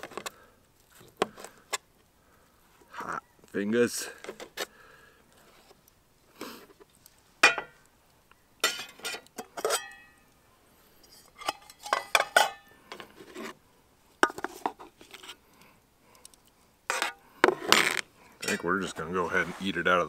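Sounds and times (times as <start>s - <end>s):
metal cutlery clinking on pot: 8.6s - 10.1s, 11.1s - 12.7s, 18.4s - 18.7s.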